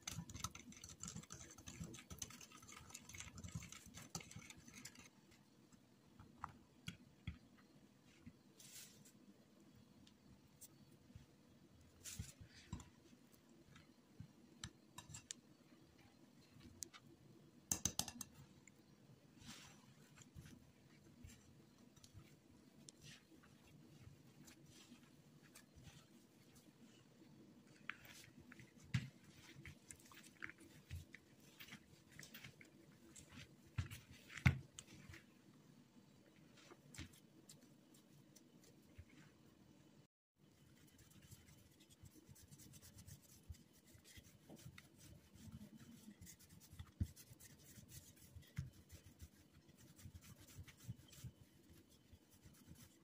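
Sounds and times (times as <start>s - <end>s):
whisk stirring thick batter: 0.0s - 5.1s, 40.5s - 53.0s
whisk wires clicking on bowl: 17.7s - 18.4s
dough squishing and crackling: 19.4s - 35.5s, 40.5s - 53.0s.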